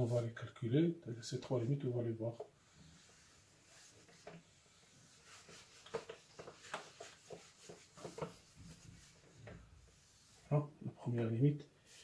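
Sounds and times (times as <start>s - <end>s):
eraser rubbing on whiteboard: 2.6s - 10.5s.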